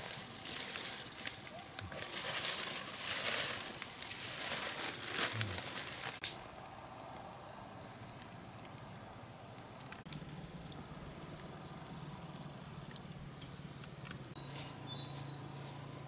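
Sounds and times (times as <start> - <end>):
dry leaves rustling and crackling: 0.0 - 6.5.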